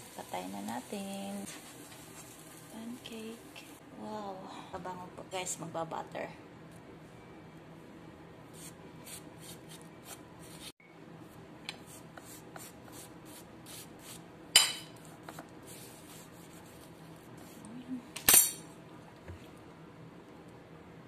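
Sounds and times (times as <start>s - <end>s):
knife striking ceramic plate: 14.6s - 15.0s.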